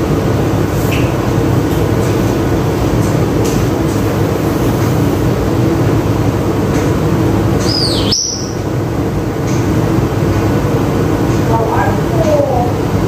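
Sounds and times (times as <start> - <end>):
loud rumbling hum: 0.0 - 13.0
parrot whistling: 7.6 - 8.6.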